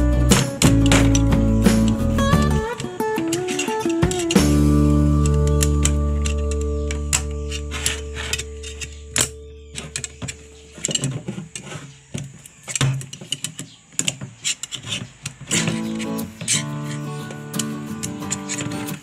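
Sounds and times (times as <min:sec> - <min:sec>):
guitar music: 0:00.0 - 0:10.8, 0:15.5 - 0:19.0.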